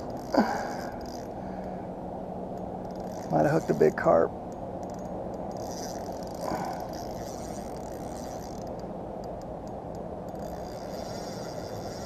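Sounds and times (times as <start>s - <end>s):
fishing reel ticking and whirring: 0.0s - 1.6s, 2.6s - 12.0s.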